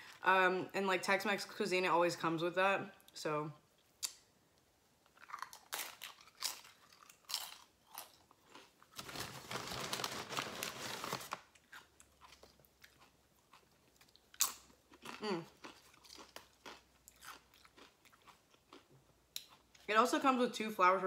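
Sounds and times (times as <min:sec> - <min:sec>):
chip crunching: 0:05.1 - 0:19.8.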